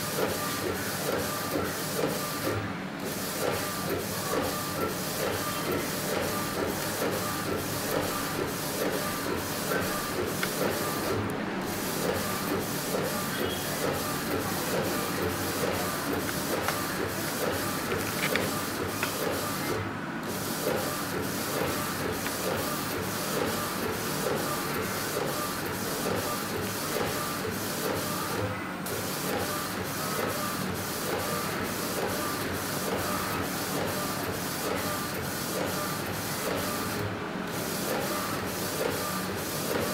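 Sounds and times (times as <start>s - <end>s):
printer carriage shuttling: 13.9s - 19.7s.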